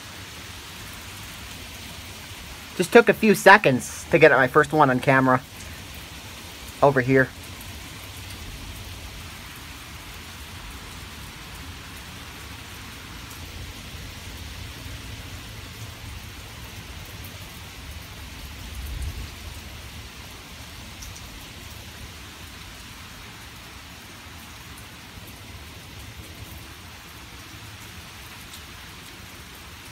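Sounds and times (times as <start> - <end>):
steady rain falling: 0.0 - 29.9
low rumble of thunder: 18.7 - 20.1.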